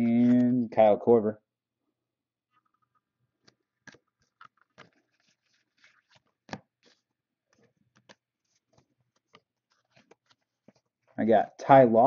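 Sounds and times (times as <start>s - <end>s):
trading cards rustling and tapping: 2.6s - 11.2s.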